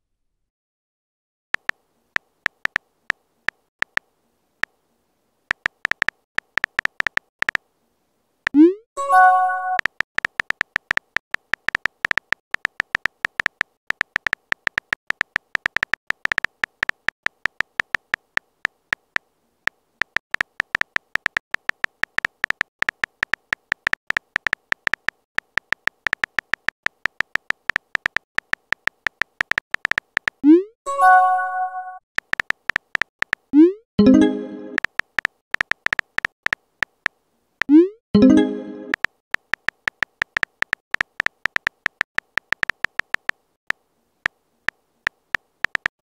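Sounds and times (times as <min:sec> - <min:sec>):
phone keyboard key clicks: 0:01.6 - 0:02.8, 0:03.5 - 0:04.1, 0:05.5 - 0:07.6, 0:09.8 - 0:19.2, 0:20.0 - 0:30.4, 0:32.2 - 0:33.5, 0:34.8 - 0:37.1, 0:38.9 - 0:46.0.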